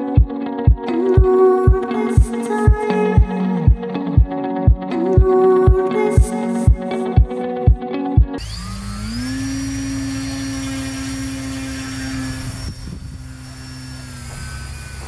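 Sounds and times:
electric motor and propeller whine: 0:08.4 - 0:15.0
wind rumble on microphone: 0:11.8 - 0:15.0.

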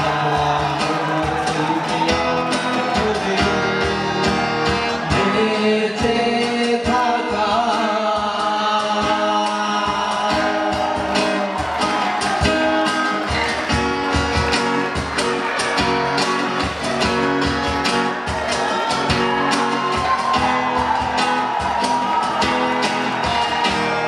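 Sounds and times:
person singing: 0:00.0 - 0:14.5
cajon beat: 0:00.0 - 0:24.0
strummed acoustic guitars: 0:00.0 - 0:24.0.

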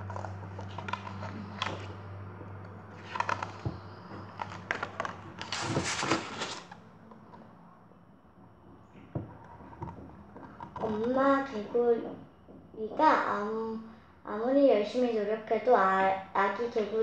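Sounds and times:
paper rustling and tapping: 0:00.0 - 0:01.9, 0:02.9 - 0:06.8
page flipping swish: 0:04.5 - 0:06.7.

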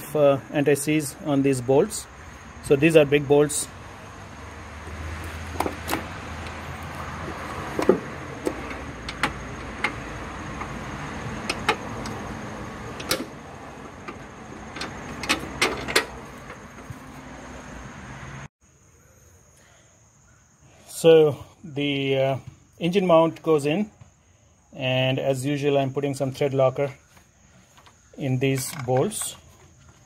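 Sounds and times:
metal bolts clinking: 0:07.2 - 0:16.9.

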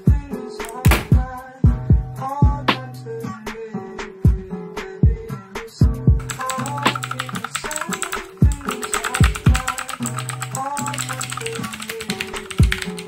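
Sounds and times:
background music with bass: 0:00.0 - 0:06.3
mechanical keyboard typing clicks: 0:06.2 - 0:13.0.

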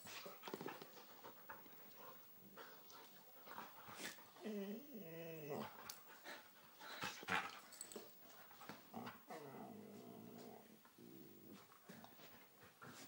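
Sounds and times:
dog growling: 0:04.4 - 0:05.8, 0:08.9 - 0:11.6.

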